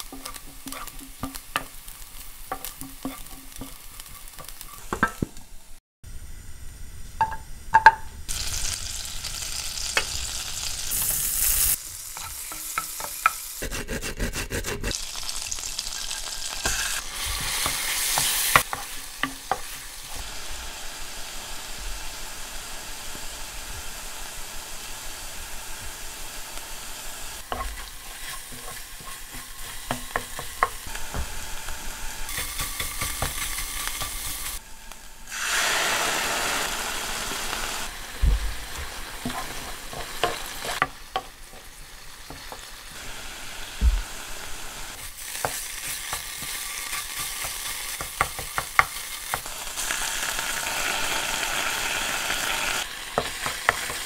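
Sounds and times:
wooden spatula scraping a pan: 0.0s - 1.7s, 2.5s - 5.2s, 27.4s - 30.8s, 38.7s - 41.7s
meat sizzling in a frying pan: 0.0s - 5.1s, 8.3s - 13.6s, 14.9s - 54.0s.

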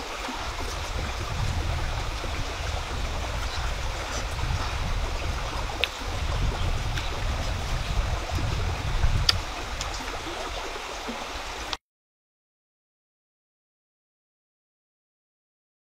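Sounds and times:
stream running over rocks: 0.0s - 11.8s.

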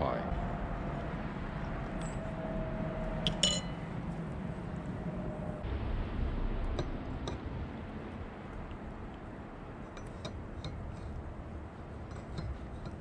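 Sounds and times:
low background rumble: 0.0s - 13.0s
spoon clinking in a mug: 3.3s - 3.8s, 12.1s - 13.0s.

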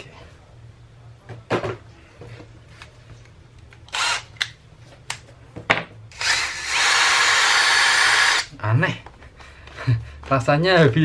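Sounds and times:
cordless drill whirring: 3.9s - 4.3s, 6.1s - 8.5s.

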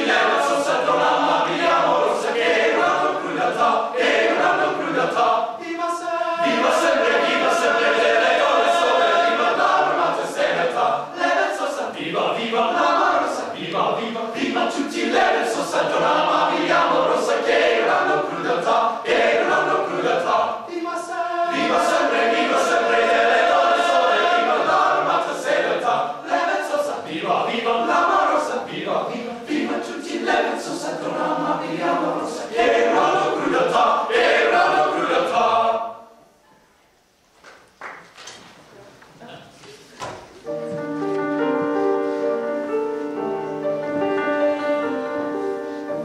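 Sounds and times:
men's choir singing a cappella: 0.0s - 36.2s.

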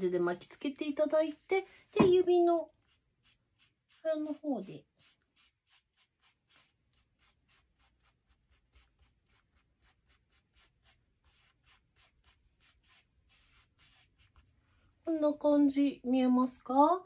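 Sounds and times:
tissue rubbing on paper: 2.6s - 14.7s.

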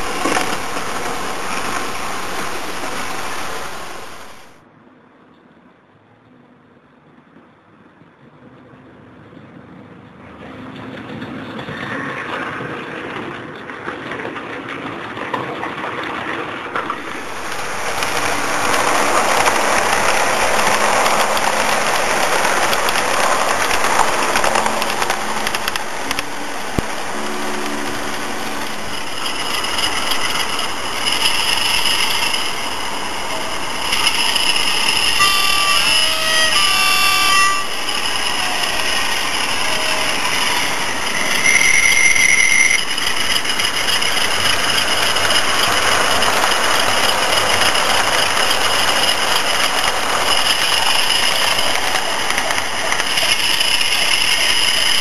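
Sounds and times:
steady whining tones: 0.0s - 4.6s, 16.8s - 55.0s
model train wheels rumbling on rail: 0.0s - 4.7s, 7.2s - 55.0s.

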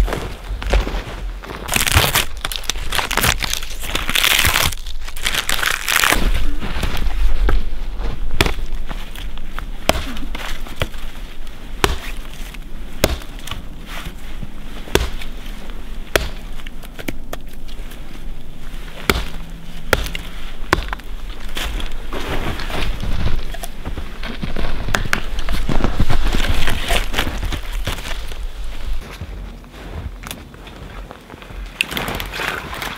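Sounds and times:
hatchet chopping wood: 8.4s - 8.7s, 9.8s - 11.0s, 11.8s - 12.2s, 13.0s - 13.6s, 14.9s - 15.3s, 16.1s - 17.2s, 19.0s - 21.1s.

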